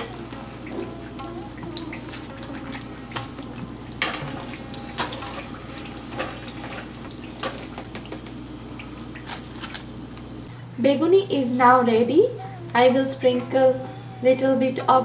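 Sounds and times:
deep-frying sizzle: 0.0 - 10.5.

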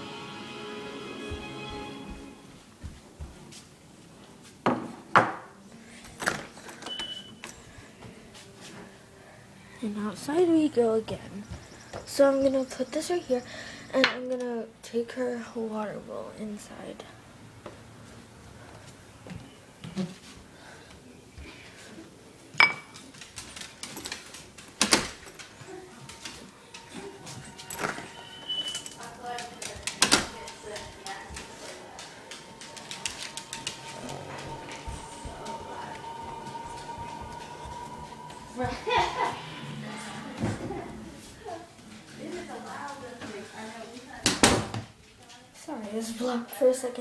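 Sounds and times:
bowl clinking: 22.6 - 23.0
high-pitched door squeak: 27.6 - 29.0.

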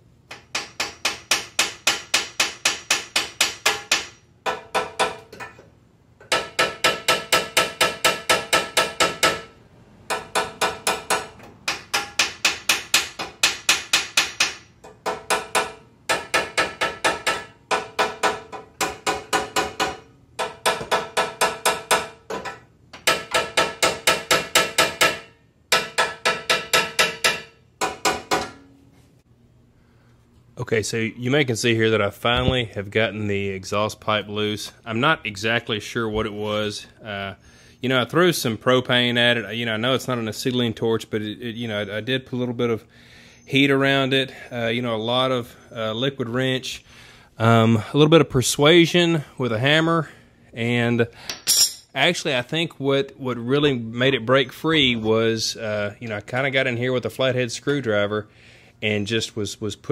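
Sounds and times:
hammer striking metal pipe: 0.3 - 5.6, 6.2 - 9.5, 10.1 - 28.7, 51.3 - 52.0.

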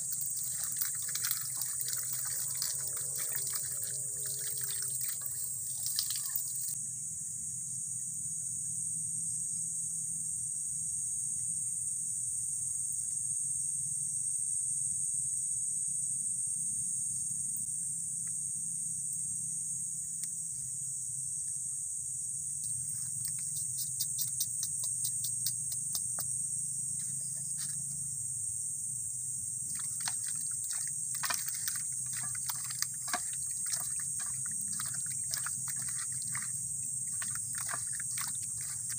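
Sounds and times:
water sloshing in steel bowl: 0.0 - 6.8, 29.6 - 38.9
low steady hum: 0.0 - 10.6, 20.1 - 38.9.

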